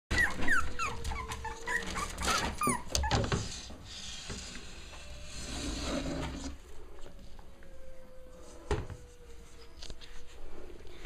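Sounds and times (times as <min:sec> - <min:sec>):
puppies whimpering and yipping: 0:00.1 - 0:03.8.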